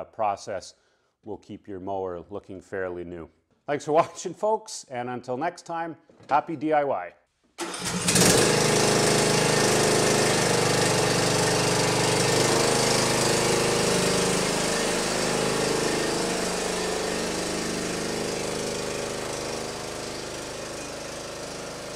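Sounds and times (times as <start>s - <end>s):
riding mower engine running: 7.6s - 21.9s.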